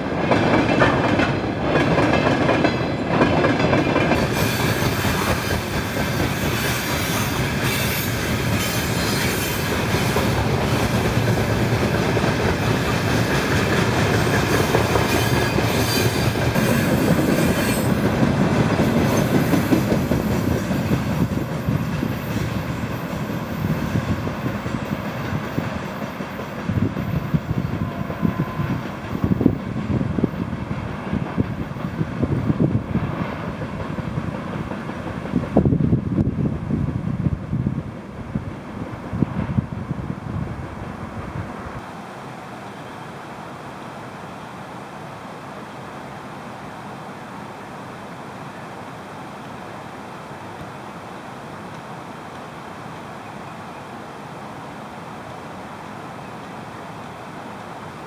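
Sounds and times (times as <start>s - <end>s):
freight train rolling past: 0.0s - 43.2s.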